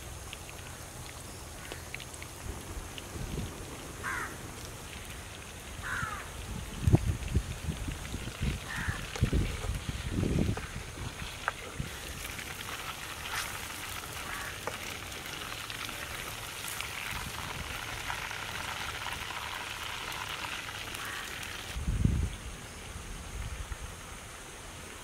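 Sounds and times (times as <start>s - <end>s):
chicken sizzling in hot oil: 5.8s - 21.8s.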